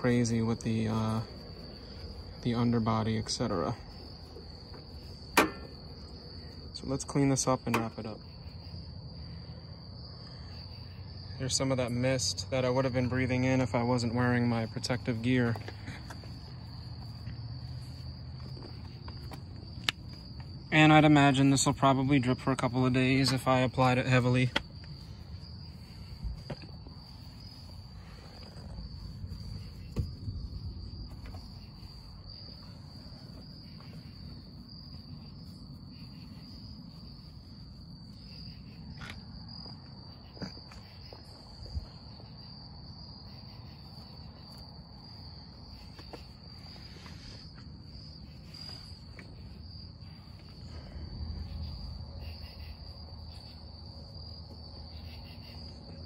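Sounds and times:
crickets trilling: 0.0 - 56.0
short knocks: 5.3 - 5.8.

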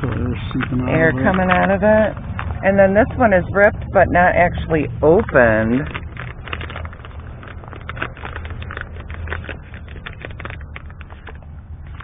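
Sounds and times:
steady low rumble: 0.0 - 12.0
packaging crackling and rustling: 5.4 - 12.0.

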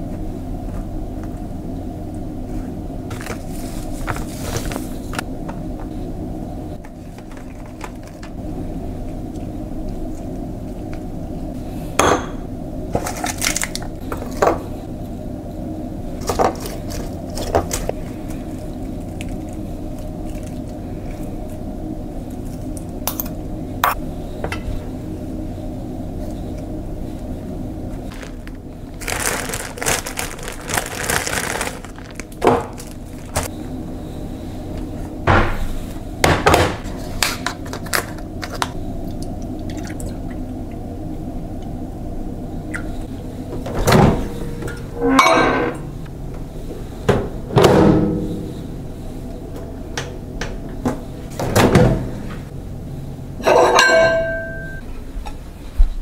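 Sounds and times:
steady low hum: 0.0 - 56.0
crinkling and crackling: 3.1 - 5.3, 6.8 - 8.4, 16.2 - 22.9, 27.9 - 33.5
metal bowl and plate clinking: 53.4 - 54.8.

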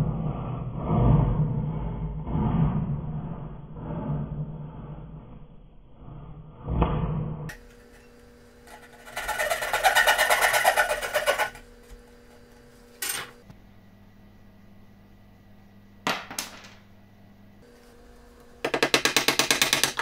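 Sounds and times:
coping saw rasping strokes: 7.5 - 11.6.

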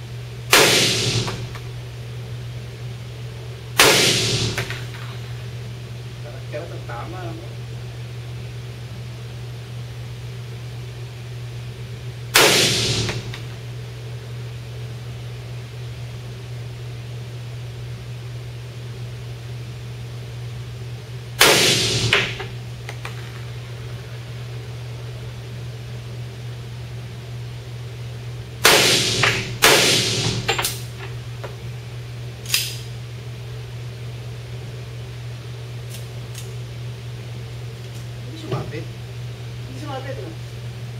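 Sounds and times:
steady low hum: 0.0 - 40.9
pistol shots echoing: 0.5 - 1.6, 3.8 - 4.9, 21.4 - 22.4, 28.6 - 30.6.

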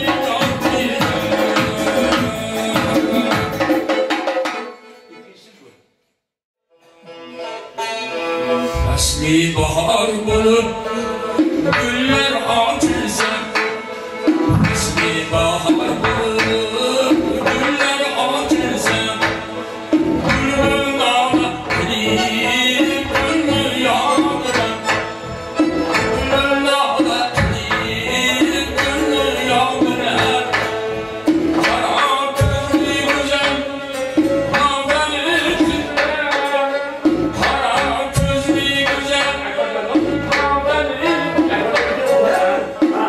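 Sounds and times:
elderly man singing: 0.0 - 3.9, 8.8 - 43.0
plucked long-necked lute: 6.8 - 43.0
frame drum: 14.2 - 39.4.

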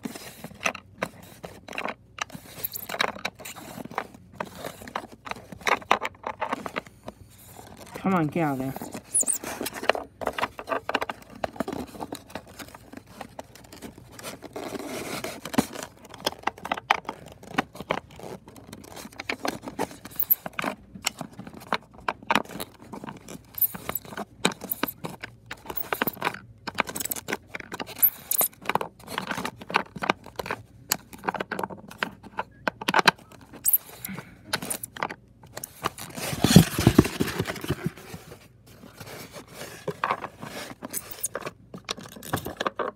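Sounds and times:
styrofoam scraping and clicking: 33.5 - 42.9.

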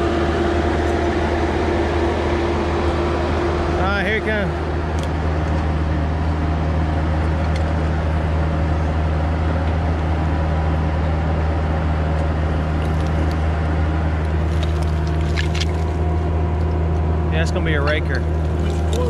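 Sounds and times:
diesel engine droning: 0.0 - 19.0.

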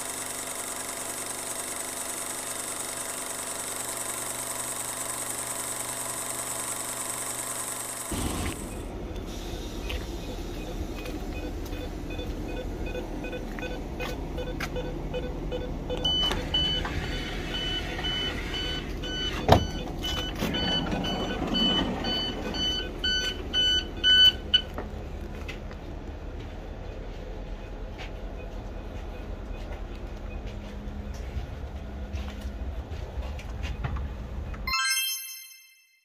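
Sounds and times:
train steady hum: 8.1 - 34.6
door-warning beeping: 9.9 - 24.7.

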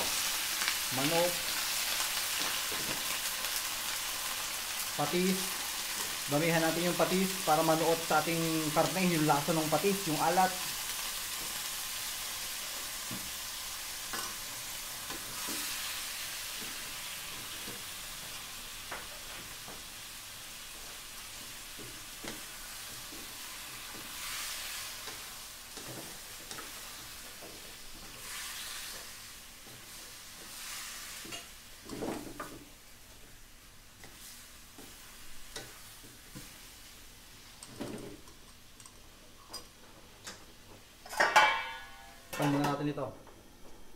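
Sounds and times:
meat sizzling in oil in a wok: 0.0 - 31.9
wooden spatula scraping a pan: 27.4 - 32.5.

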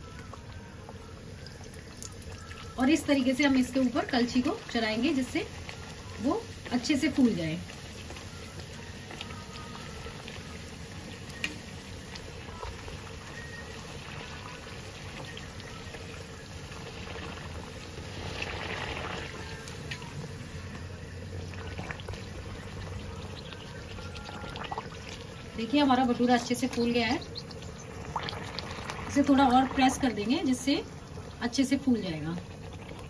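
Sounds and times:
dough sizzling in hot oil: 0.0 - 33.0.

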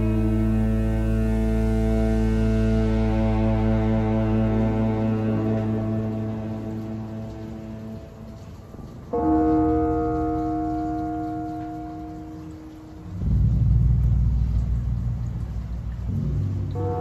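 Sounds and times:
loud low rumble: 0.0 - 8.0, 11.5 - 17.0
deep gong tone ringing: 0.0 - 8.4, 9.1 - 17.0.

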